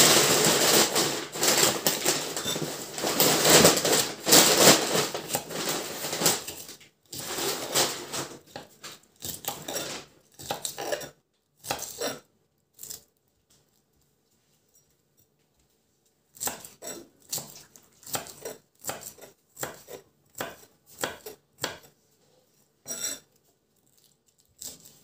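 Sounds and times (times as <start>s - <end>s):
knife slicing lettuce: 0.0s - 13.1s, 16.3s - 22.0s, 22.8s - 25.0s.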